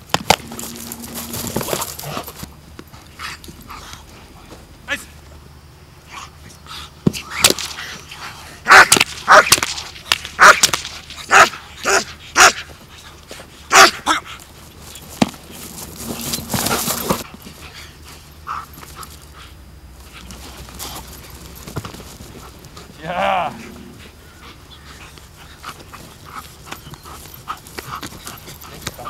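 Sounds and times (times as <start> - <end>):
dog barking: 8.7 - 9.5, 10.4 - 10.7, 11.3 - 12.6, 13.7 - 14.2.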